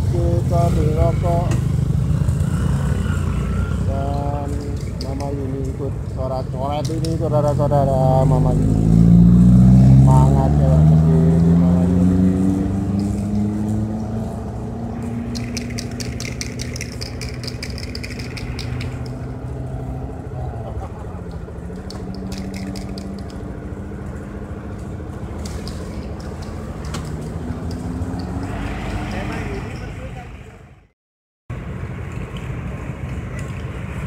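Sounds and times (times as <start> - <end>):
motorbike and car engines passing: 0.0 - 30.9
rapid fine clicking: 15.2 - 19.2, 21.7 - 23.4.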